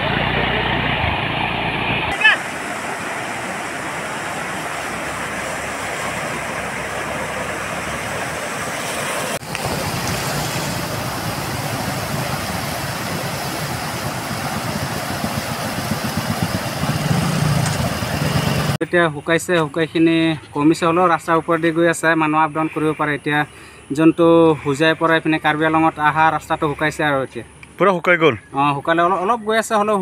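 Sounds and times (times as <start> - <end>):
auto-rickshaw driving through water: 0.0 - 18.8
car driving through water: 0.0 - 18.8
floodwater rushing across road: 0.0 - 18.8.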